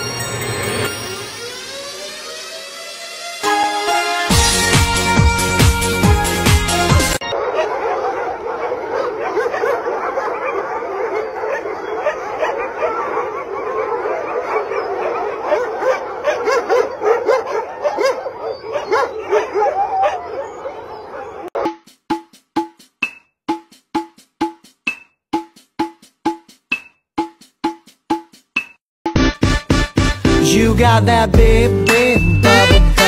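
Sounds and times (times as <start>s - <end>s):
percussive music: 3.4s - 7.2s, 21.6s - 33.0s
pack of dogs barking: 7.2s - 21.6s.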